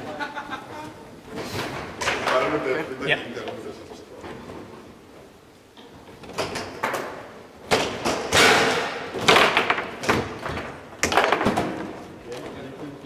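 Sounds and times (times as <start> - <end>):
foosball clacks and knocks: 6.2 - 11.9
foosball rods spun and slammed: 6.2 - 12.0.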